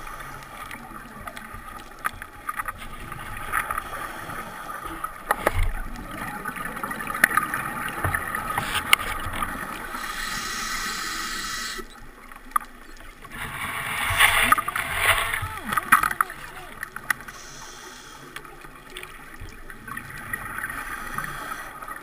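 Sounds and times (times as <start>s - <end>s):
underwater hiss: 9.7s - 11.9s, 17.2s - 18.6s, 20.6s - 22.0s
broad loud hiss: 9.9s - 11.8s, 17.3s - 18.3s.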